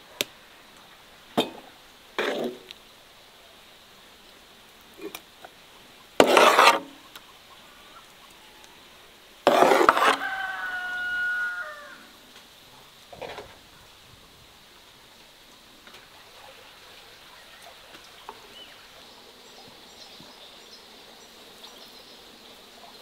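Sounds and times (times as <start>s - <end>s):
spoon scraping metal pan: 6.2s - 7.0s, 9.5s - 10.3s
rooster crowing: 9.9s - 12.2s.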